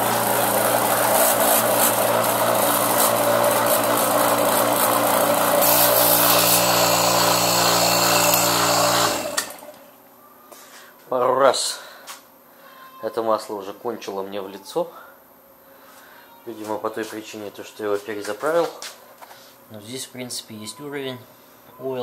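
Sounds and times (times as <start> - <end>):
vacuum pump running: 0.0 - 9.8.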